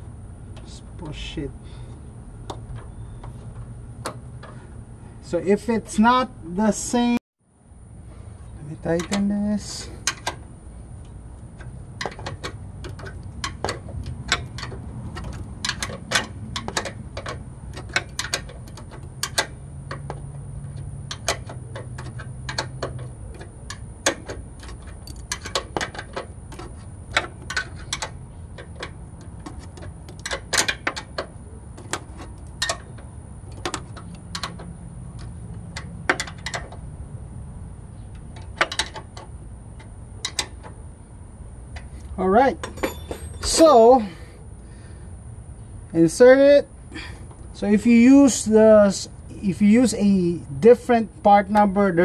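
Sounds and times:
wrench clicking against bolt: 8.9s - 10.4s, 11.0s - 36.8s, 38.1s - 40.8s.

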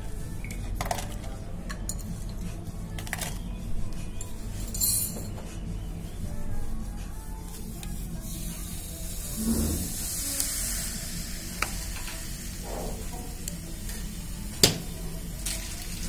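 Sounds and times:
liquid nitrogen sizzling and hissing: 7.5s - 16.0s.

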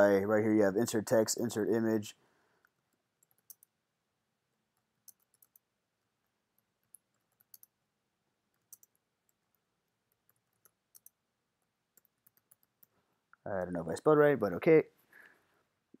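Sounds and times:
computer keyboard keystrokes: 5.0s - 5.7s, 6.8s - 7.8s, 8.5s - 11.2s, 12.0s - 12.9s.

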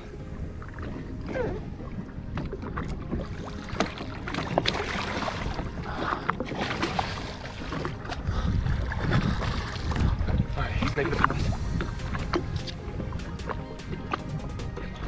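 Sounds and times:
water splashing against hull: 0.0s - 15.0s
wind on microphone: 4.6s - 15.0s.

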